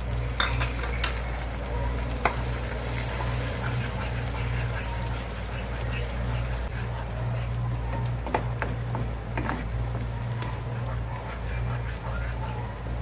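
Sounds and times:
steady low hum: 0.0 - 13.0
paste sizzling in hot oil: 2.2 - 5.8.

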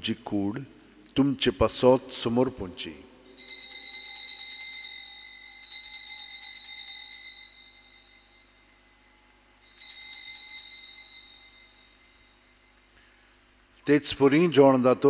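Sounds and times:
altar bell ringing: 3.2 - 13.5.

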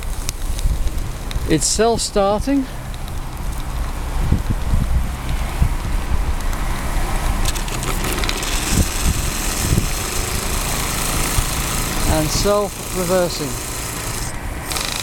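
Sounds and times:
steady low rumble: 0.0 - 14.8
steam engine running: 7.5 - 15.0
steam hissing: 7.6 - 15.0.

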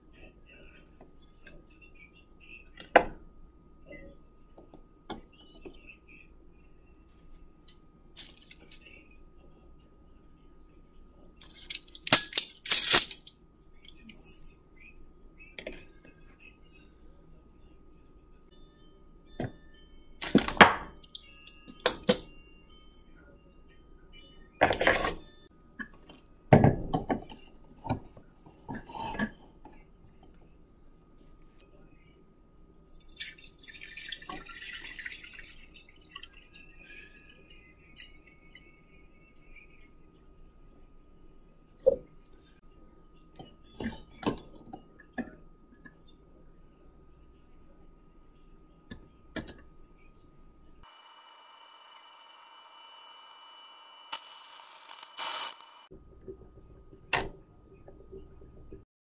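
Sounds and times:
water pouring into kettle: 32.9 - 37.4.

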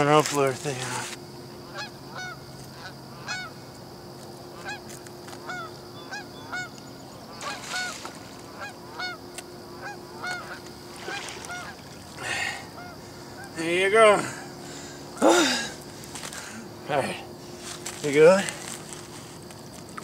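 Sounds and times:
rustle: 0.0 - 1.3, 6.6 - 20.0
faint steady hum: 0.0 - 20.0
geese honking: 1.6 - 3.6, 4.5 - 15.3.

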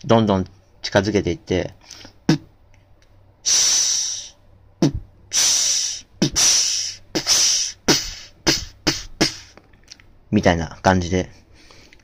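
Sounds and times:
beatboxed snare pops and hisses: 4.8 - 9.6.

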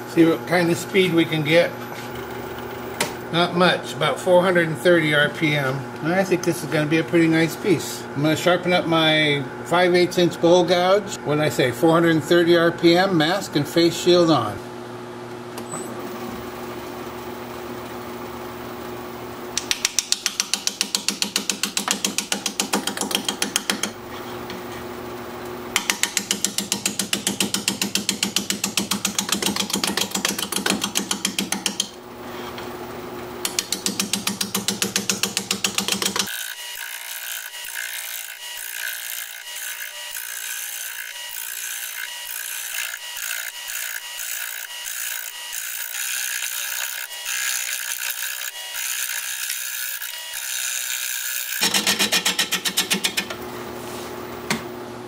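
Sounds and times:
gouge knocking on spinning wood: 19.6 - 24.0, 33.5 - 36.3
wood lathe humming: 33.4 - 53.4.

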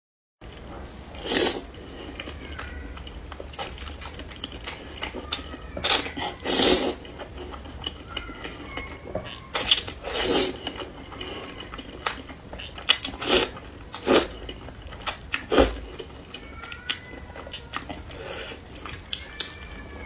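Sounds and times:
slurping noodles: 6.2 - 7.1, 9.6 - 11.5, 13.2 - 14.4.

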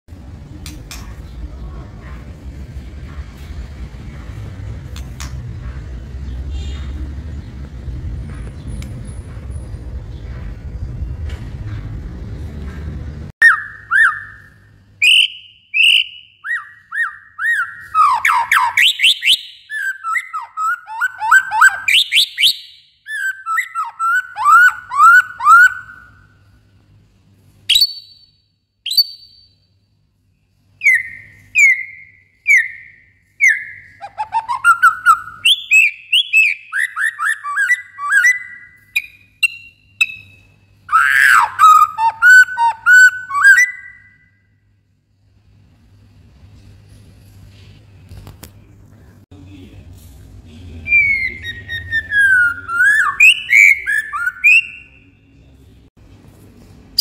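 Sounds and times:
songbird whistling song: 13.4 - 26.4, 27.7 - 29.7, 30.8 - 44.5, 50.9 - 55.3.

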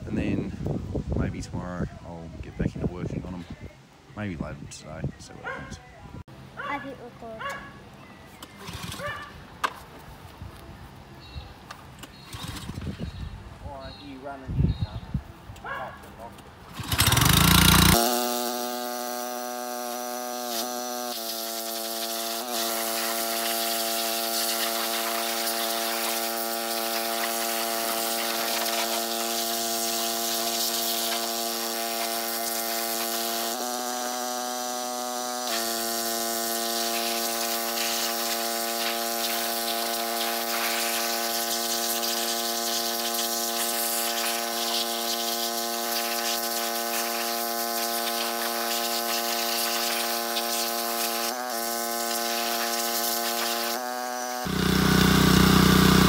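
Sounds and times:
pressure washer motor whine: 16.8 - 56.0
water jet hissing: 19.0 - 56.0.

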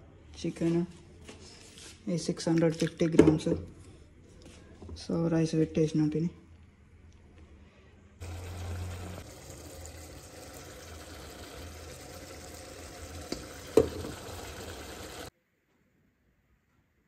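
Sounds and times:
chicken sizzling with watery hiss: 8.2 - 15.3.

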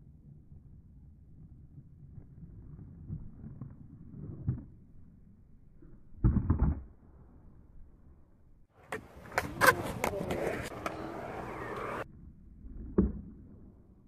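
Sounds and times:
skateboard clacks: 8.8 - 12.0
skateboard clattering: 8.8 - 12.0
skateboard grinding on concrete: 8.8 - 12.0.

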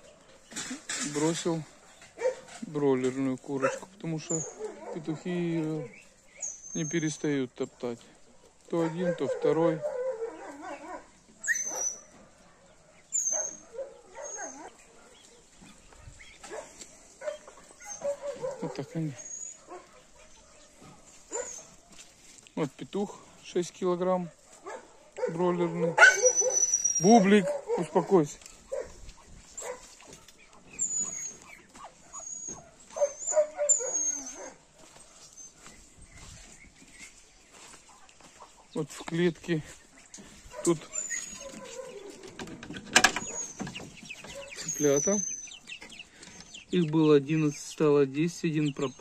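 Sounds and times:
dog crying: 8.8 - 12.1, 13.1 - 14.8, 17.2 - 19.8, 24.7 - 28.0, 30.8 - 31.4, 32.0 - 34.7
thin high chirps: 26.2 - 27.2.

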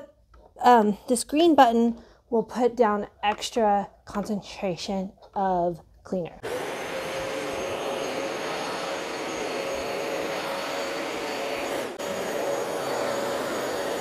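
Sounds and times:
carpet cleaner suction whine: 6.4 - 14.0.

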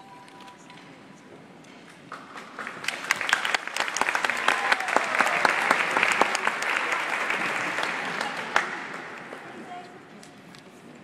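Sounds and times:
audience clapping: 2.0 - 9.6.

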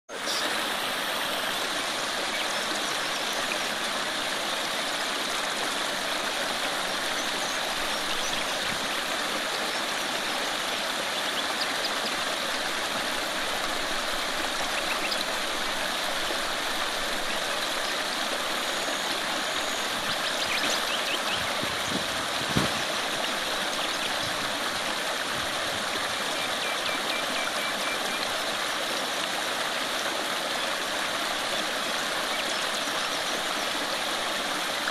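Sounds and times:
creek water rushing over rocks: 0.1 - 34.9
brief thump: 22.4 - 22.9.

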